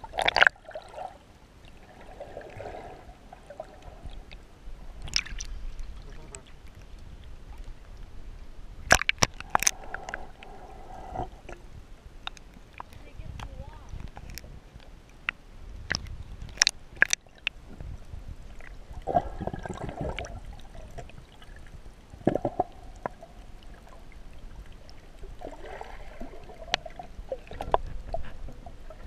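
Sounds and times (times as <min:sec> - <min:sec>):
bubbly gurgling: 0:00.0 - 0:01.2, 0:18.8 - 0:29.0
muffled underwater rumble: 0:00.0 - 0:29.0.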